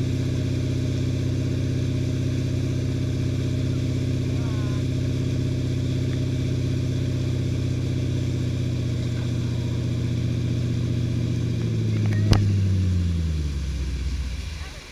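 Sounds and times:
boat engine droning: 0:00.0 - 0:14.9
water rushing in boat wake: 0:08.8 - 0:14.9.

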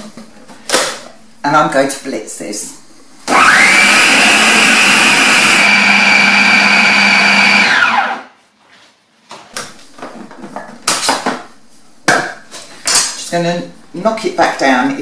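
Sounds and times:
food processor whining: 0:03.3 - 0:08.3.

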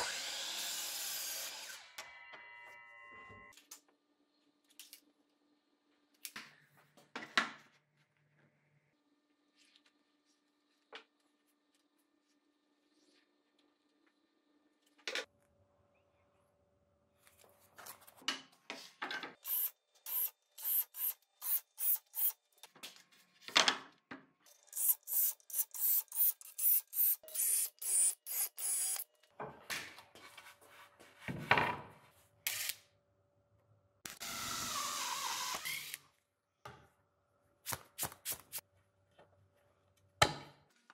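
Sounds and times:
power drill boring into wood: 0:34.1 - 0:36.0.

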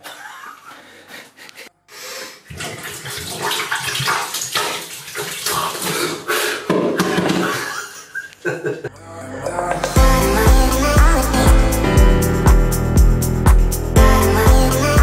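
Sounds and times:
water splashing in a bathtub: 0:02.4 - 0:07.9.

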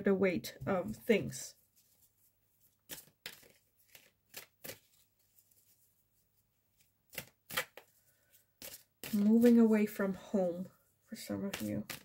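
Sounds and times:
cards swishing and tapping: 0:01.8 - 0:05.8, 0:06.7 - 0:09.7, 0:11.4 - 0:12.0.

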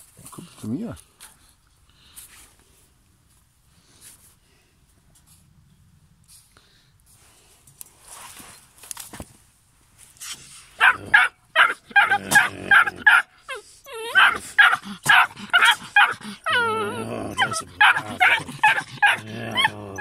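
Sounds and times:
puppy barking in high yaps: 0:10.8 - 0:13.3, 0:14.1 - 0:16.6, 0:17.4 - 0:19.7
puppy whining: 0:10.8 - 0:20.0.

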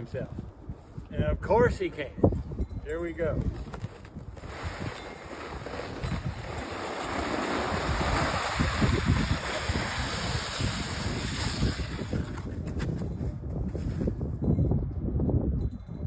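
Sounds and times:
wind buffeting microphone: 0:00.0 - 0:16.0
sled hissing over snow: 0:04.4 - 0:12.5.

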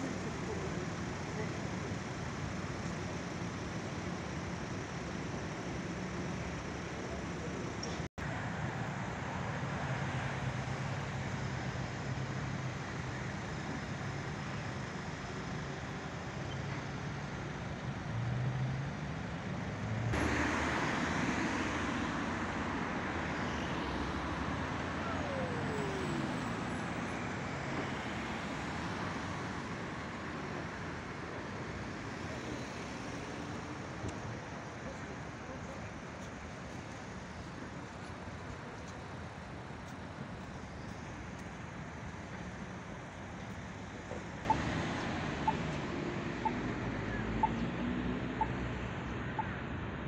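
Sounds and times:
street traffic: 0:00.0 - 0:50.0.

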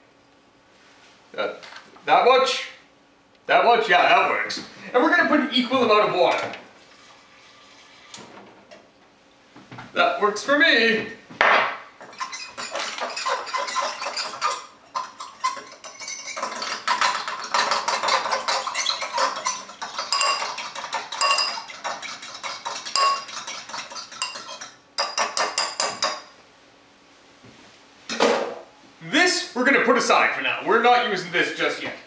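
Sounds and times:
fork whisking in ceramic bowl: 0:12.0 - 0:26.2.

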